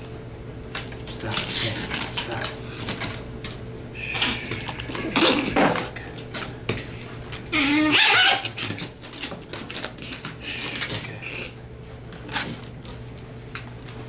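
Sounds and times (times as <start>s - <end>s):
dog yelping: 7.5s - 8.9s.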